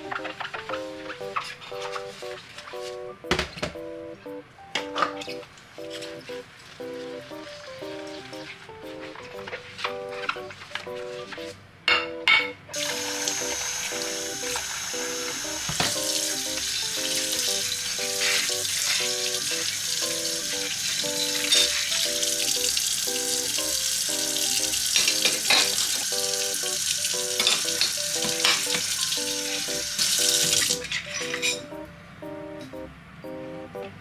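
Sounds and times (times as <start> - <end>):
soft background music: 0.0 - 34.0
tap water running into a sink: 12.8 - 31.3.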